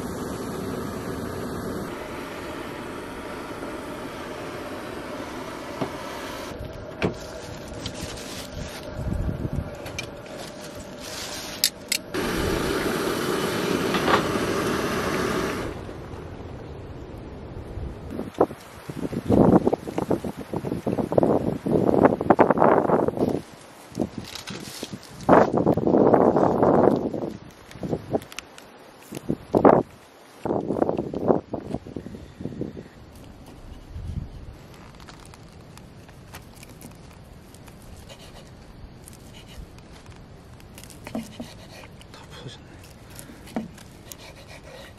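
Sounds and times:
camp stove burner hissing: 0:00.0 - 0:16.4, 0:33.2 - 0:44.9
steady low rumble: 0:00.0 - 0:19.8.

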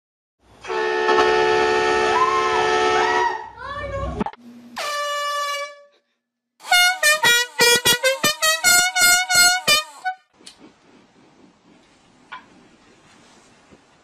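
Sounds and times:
horn short honks: 0:00.6 - 0:03.5, 0:04.7 - 0:06.0, 0:06.6 - 0:10.3
loud air horn blast: 0:00.6 - 0:03.6, 0:04.7 - 0:06.0, 0:06.6 - 0:10.3.

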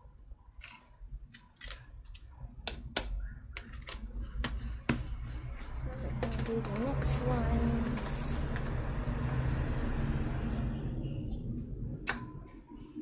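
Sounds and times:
plastic lids clicking and snapping: 0:00.5 - 0:05.1, 0:12.0 - 0:12.6.

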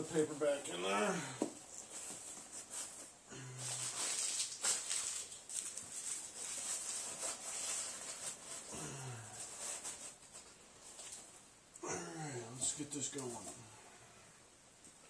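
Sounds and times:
paper and cardboard crinkling: 0:01.6 - 0:11.4.

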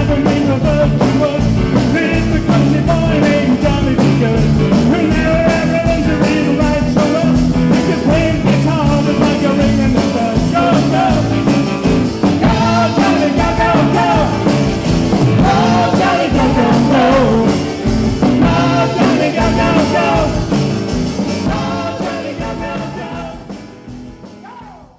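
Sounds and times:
acoustic guitar: 0:00.0 - 0:24.4
live band with singing: 0:00.0 - 0:24.9
steady drum beat: 0:00.0 - 0:24.9.

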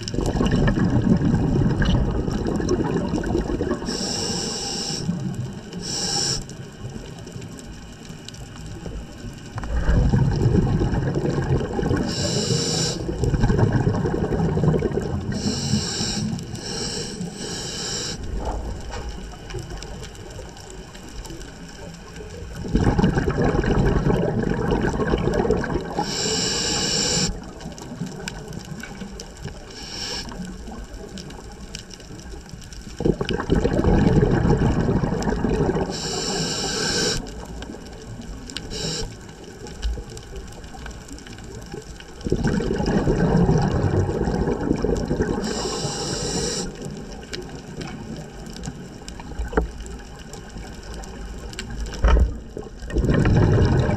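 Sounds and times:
exhaled bubbles underwater: 0:00.0 - 0:53.9
regulator high hiss: 0:03.8 - 0:05.2, 0:05.8 - 0:06.7, 0:12.1 - 0:13.0, 0:15.3 - 0:18.4, 0:26.0 - 0:27.4, 0:29.7 - 0:30.4, 0:35.9 - 0:37.3, 0:38.7 - 0:39.2, 0:45.4 - 0:46.8.

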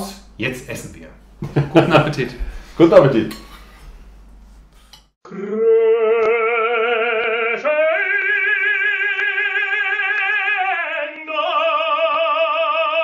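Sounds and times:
operatic voice singing: 0:05.2 - 0:13.0.

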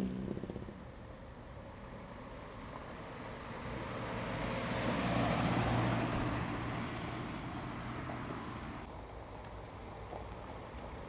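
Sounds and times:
car driving past: 0:02.4 - 0:08.9.

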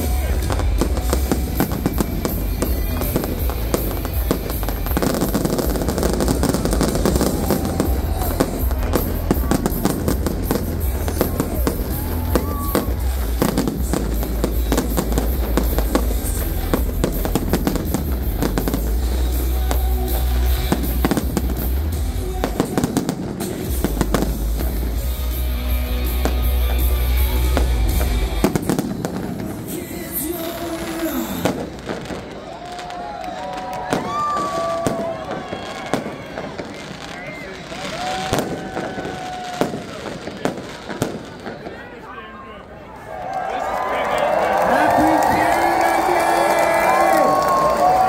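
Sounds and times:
music playing: 0:00.0 - 0:32.2, 0:43.8 - 0:48.0
fireworks banging: 0:00.0 - 0:42.1.

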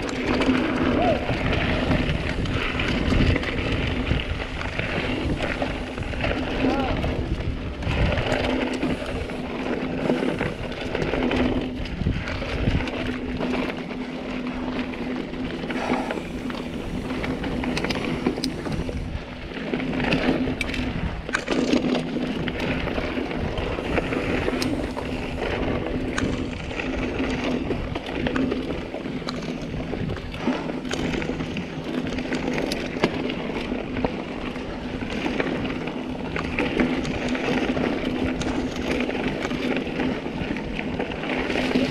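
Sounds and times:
bike knocking and rattling: 0:00.0 - 0:41.9
bike tyres crunching on dirt: 0:00.0 - 0:41.9
steady low hum: 0:13.0 - 0:20.0.

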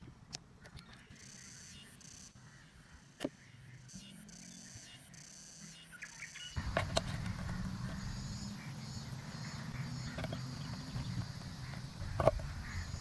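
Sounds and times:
insects buzzing: 0:01.2 - 0:13.0
steady low hum: 0:06.6 - 0:13.0.

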